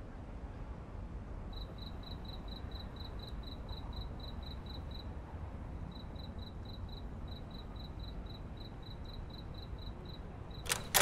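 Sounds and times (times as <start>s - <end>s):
cricket chirping: 1.5s - 5.1s, 5.9s - 11.0s.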